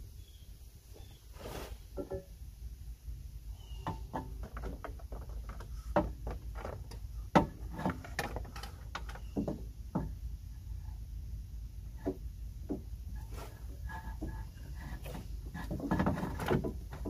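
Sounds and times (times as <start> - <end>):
low steady hum: 0.0 - 17.0
clicks and knocks of metal parts: 3.8 - 10.2.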